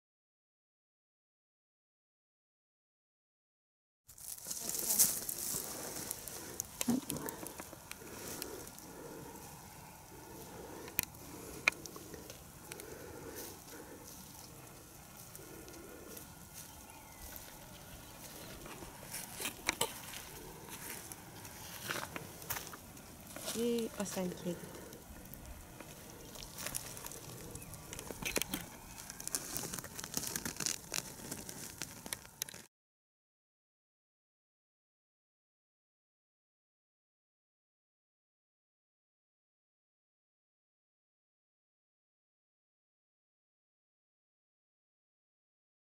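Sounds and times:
dry leaves rustling underfoot: 4.1 - 32.6
twigs snapping: 4.2 - 32.7.

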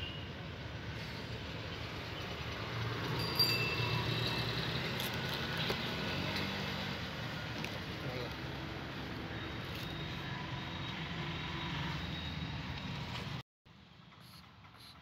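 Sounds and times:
light metallic clinks: 3.2 - 4.4.

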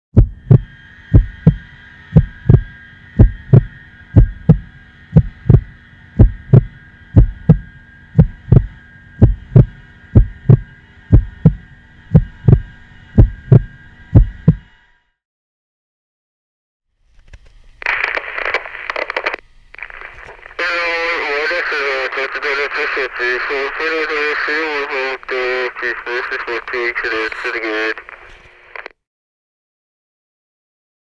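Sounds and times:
heartbeat thumps: 0.2 - 14.7
high-pitched hum: 0.2 - 15.0, 17.2 - 28.7.

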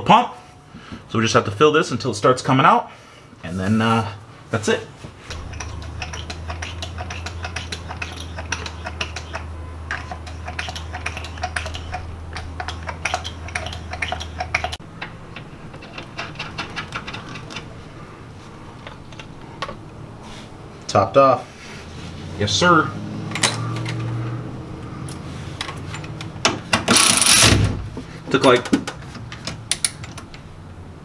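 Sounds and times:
pump low hum: 5.3 - 14.8
fluid pump clicking and ticking: 5.3 - 17.6.

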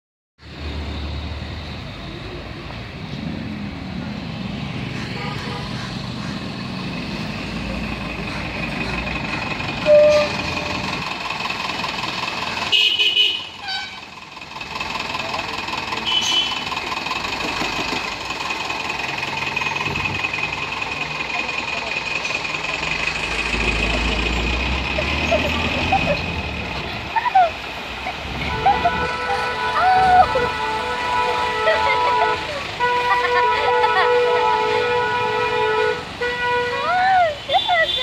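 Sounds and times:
street traffic: 0.4 - 38.0
vehicle horn honking: 9.8 - 11.0, 12.7 - 14.0, 16.0 - 16.6, 28.4 - 38.0
people's voices: 20.4 - 34.8.

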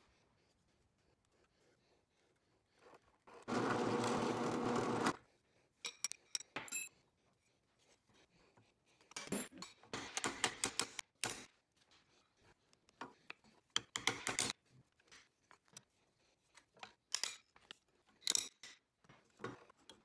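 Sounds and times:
drill press motor running: 3.5 - 5.2
light clicks of handled parts: 5.8 - 7.0, 12.7 - 20.0.

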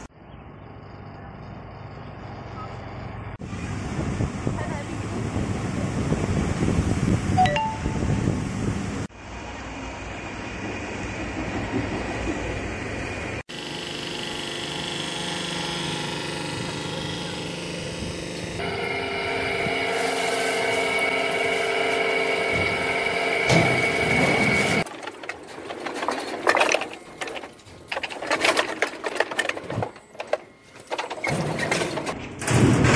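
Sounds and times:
machine hum with held tones: 13.5 - 24.8
irregular knocks and clatter: 24.6 - 32.9.

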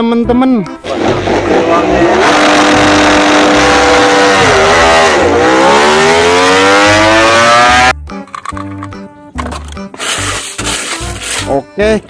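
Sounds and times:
motorcycle engine revving: 0.8 - 7.9.

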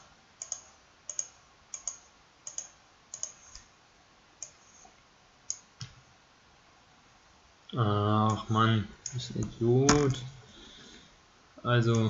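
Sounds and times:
computer mouse clicks: 0.4 - 3.7, 4.4 - 6.0.

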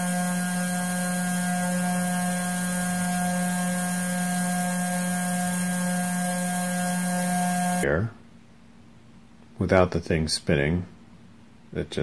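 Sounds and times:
gyroscope rotor humming: 0.0 - 7.8.

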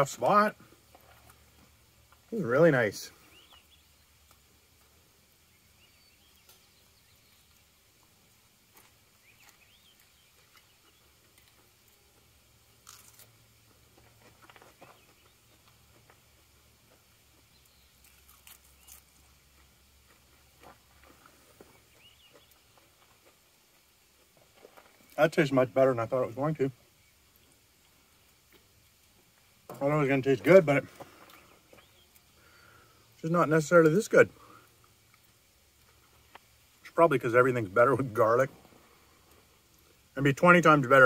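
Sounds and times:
faint crunching and chewing: 0.1 - 37.0, 37.9 - 40.6.

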